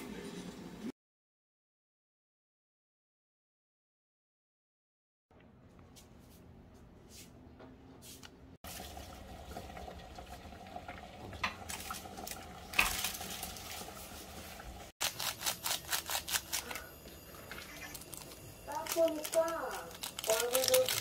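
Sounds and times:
water boiling in a pot: 8.6 - 14.9
seasoning packet being shaken: 18.0 - 21.0.

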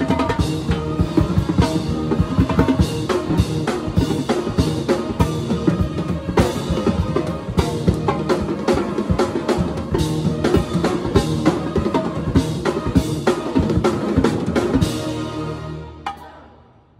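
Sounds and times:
fast drum kit playing: 0.0 - 16.3.

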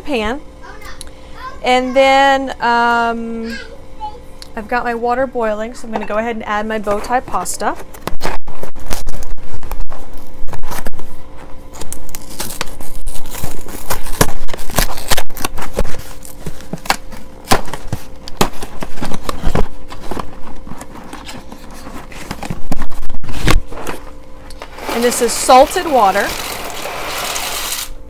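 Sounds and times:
cardboard box tearing and rustling: 12.1 - 24.0.

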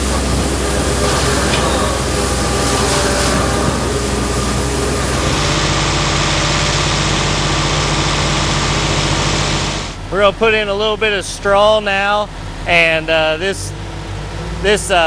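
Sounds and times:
mixer chopping hay: 0.0 - 10.0
engine drone: 0.0 - 15.0.

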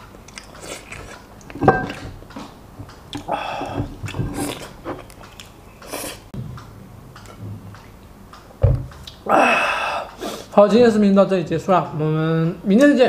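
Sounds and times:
chewing and mouth noises: 0.1 - 1.6, 2.3 - 6.2.

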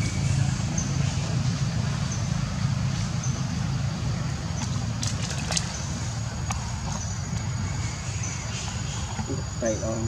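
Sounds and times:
low outdoor rumble: 0.0 - 10.0.

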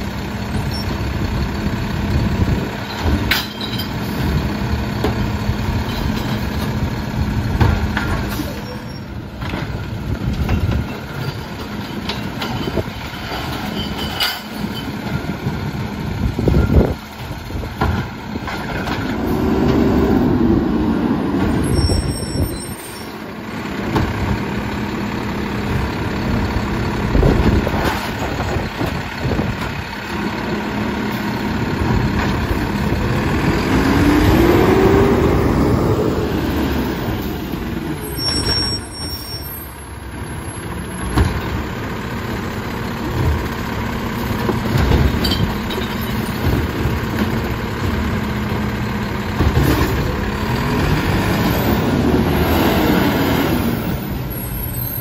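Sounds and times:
diesel engine revving: 15.3 - 55.0
carts knocking and banging: 43.0 - 48.6.

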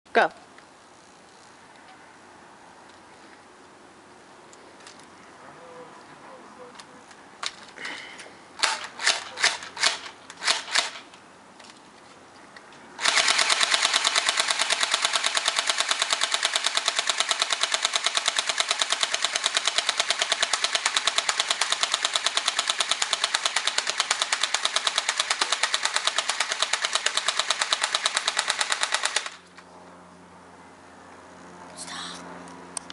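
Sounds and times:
airsoft gun shots: 8.6 - 11.0, 13.0 - 29.4
full-auto airsoft burst: 8.6 - 11.0, 13.0 - 29.4.

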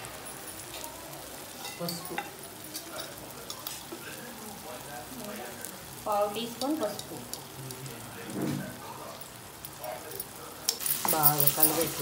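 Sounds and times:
masala sizzling in oil: 0.0 - 12.0.

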